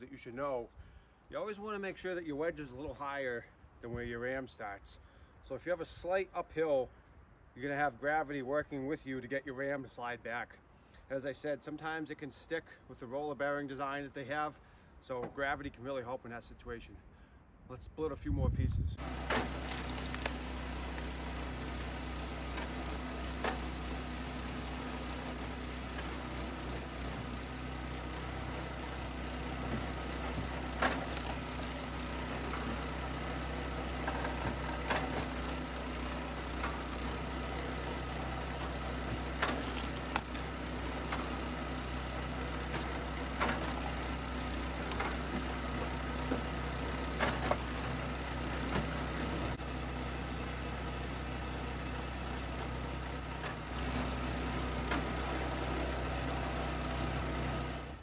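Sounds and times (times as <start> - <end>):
small gas engine running: 19.0 - 58.0.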